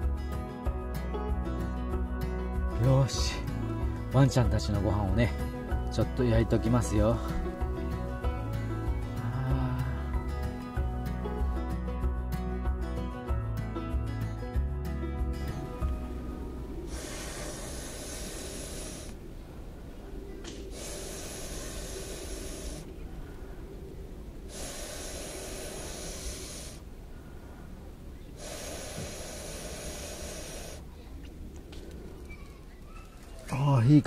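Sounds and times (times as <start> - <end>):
breaths blown through metal pipe: 15.4 - 19.2, 20.7 - 23.6, 24.5 - 27.5, 28.4 - 30.9.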